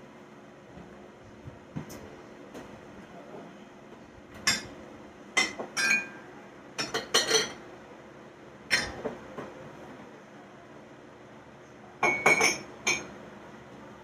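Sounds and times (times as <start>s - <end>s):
mugs and glassware clinking: 4.4s - 4.8s, 5.4s - 6.2s, 6.8s - 7.6s, 8.7s - 9.2s, 12.0s - 13.2s.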